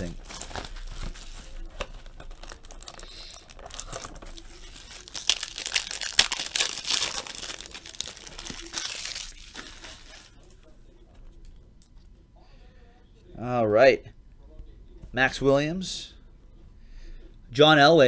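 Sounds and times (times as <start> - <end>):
plastic wrapping crinkling and tearing: 0.0 - 10.5.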